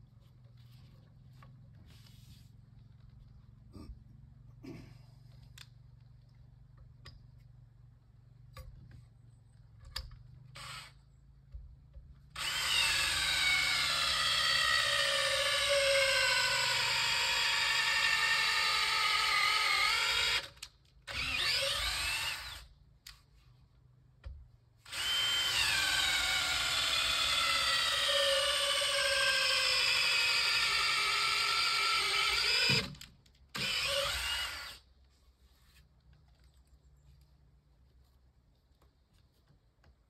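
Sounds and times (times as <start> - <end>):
power drill running: 10.6 - 11.0, 12.4 - 20.5, 21.1 - 22.6, 24.9 - 34.8.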